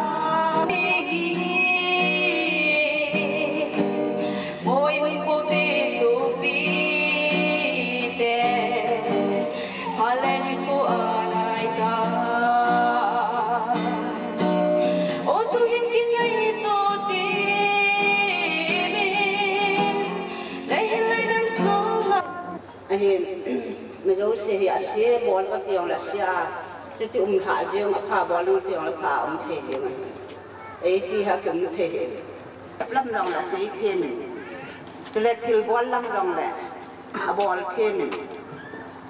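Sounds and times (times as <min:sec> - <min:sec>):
woman singing into a microphone: 0:00.0 - 0:30.1.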